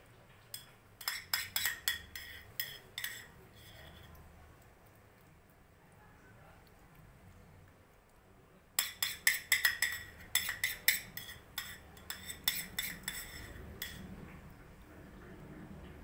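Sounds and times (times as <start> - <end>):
tableware clinking: 0.5 - 4.0, 8.8 - 14.0.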